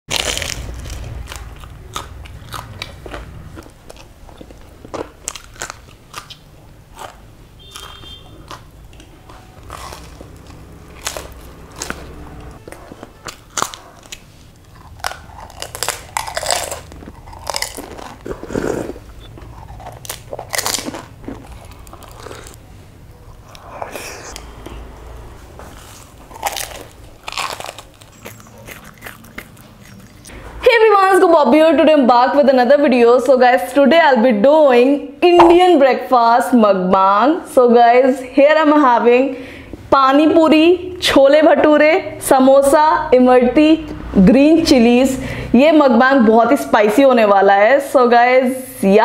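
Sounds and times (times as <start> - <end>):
chewing crisp fried pastry: 0.1 - 22.6, 25.6 - 30.4.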